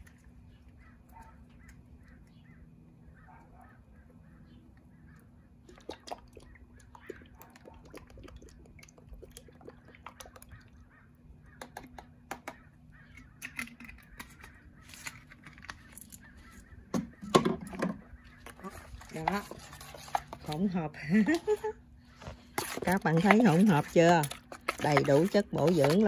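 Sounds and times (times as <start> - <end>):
faint bird calls: 0.5 - 5.8, 6.4 - 7.6, 10.1 - 11.8, 12.4 - 19.2
mixture stirred in container: 5.7 - 10.9, 18.3 - 26.0.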